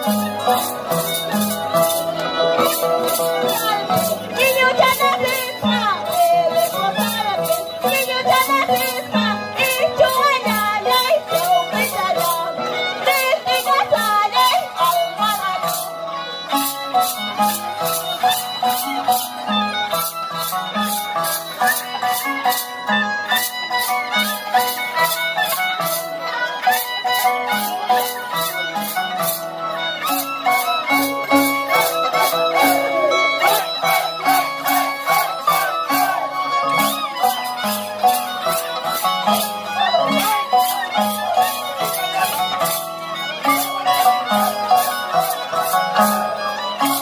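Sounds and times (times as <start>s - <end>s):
violins playing melody: 0.0s - 47.0s
shaken rattle beat: 30.2s - 42.8s.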